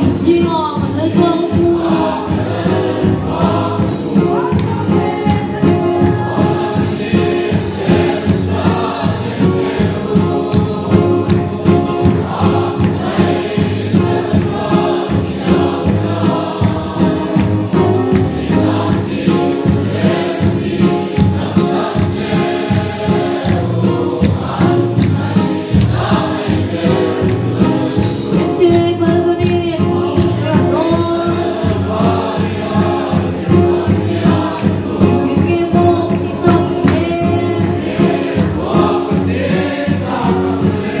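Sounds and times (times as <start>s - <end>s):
congregation and choir singing: 0.0s - 41.0s
steady drum beat: 0.0s - 41.0s.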